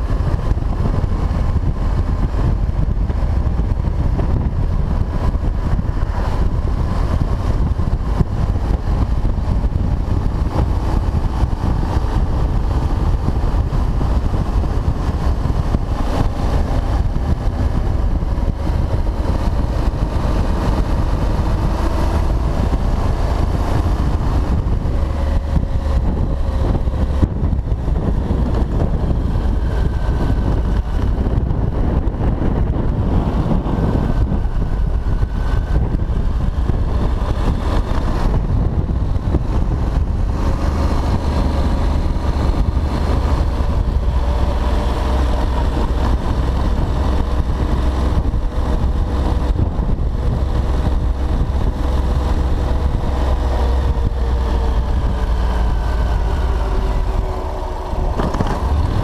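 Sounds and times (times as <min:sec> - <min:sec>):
motorcycle engine running: 0:00.0 - 0:59.0
wind rumble on microphone: 0:00.0 - 0:59.0.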